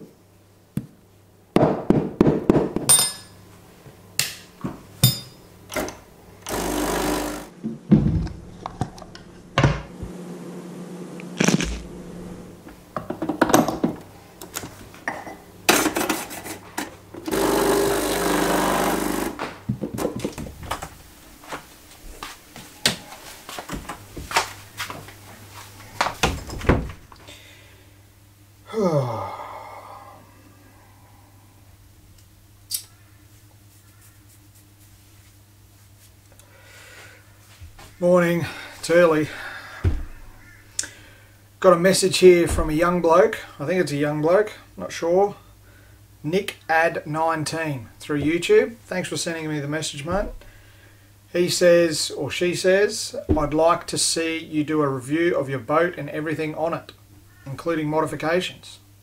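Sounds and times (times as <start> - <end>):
espresso machine running: 6.4 - 7.5, 17.3 - 19.4.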